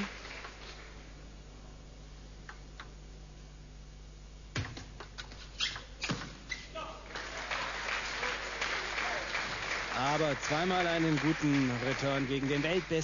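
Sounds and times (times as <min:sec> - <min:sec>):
crowd applauding: 0:00.0 - 0:01.0, 0:07.1 - 0:13.0.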